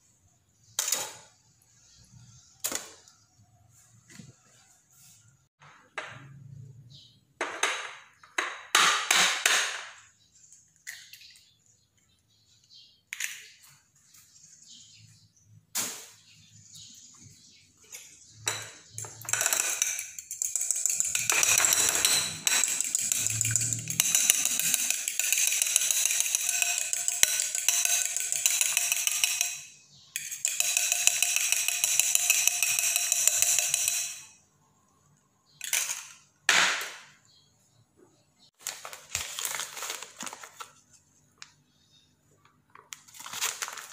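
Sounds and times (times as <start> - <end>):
fork beating eggs in bowl: 18.9 - 29.6, 30.2 - 34.3.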